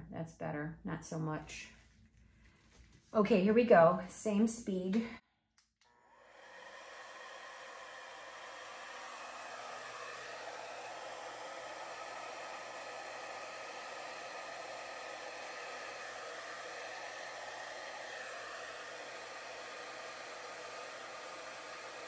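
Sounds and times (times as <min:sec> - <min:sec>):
hair dryer running: 0:05.8 - 0:22.0.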